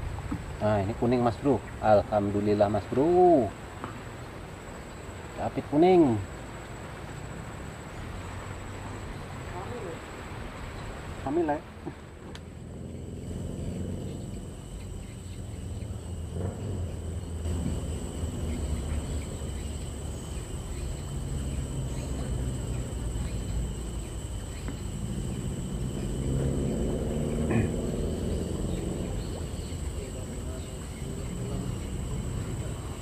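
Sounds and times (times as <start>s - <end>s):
insects droning high-pitched: 0.0s - 33.0s.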